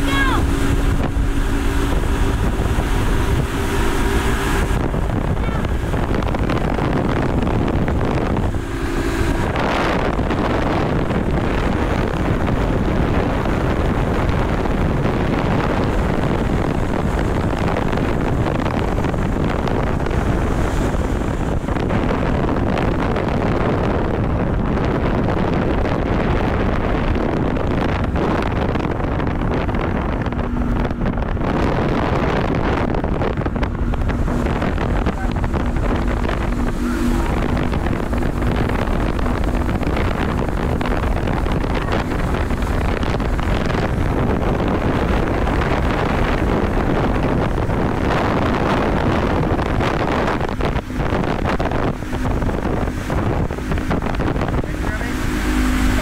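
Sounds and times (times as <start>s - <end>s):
outboard motors running: 0.0s - 56.0s
rushing water: 0.0s - 56.0s
wind buffeting microphone: 0.0s - 56.0s.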